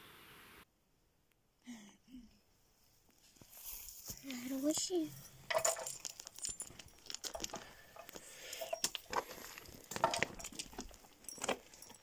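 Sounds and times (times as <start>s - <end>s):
metal dog chain clinking: 5.0s - 12.0s.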